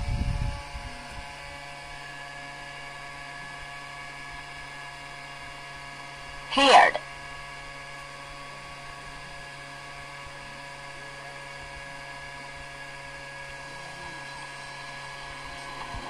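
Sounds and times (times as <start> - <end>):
small fan motor whine and hum: 0.0 - 16.0.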